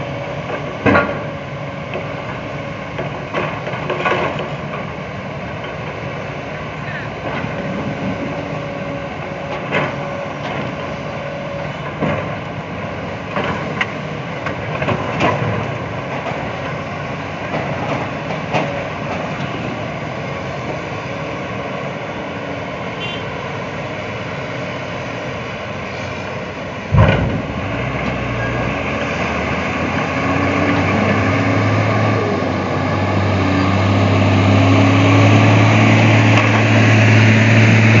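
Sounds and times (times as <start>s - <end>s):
diesel engines running: 0.0s - 38.0s
truck pulling away: 15.4s - 38.0s
heavy thump: 26.9s - 28.2s.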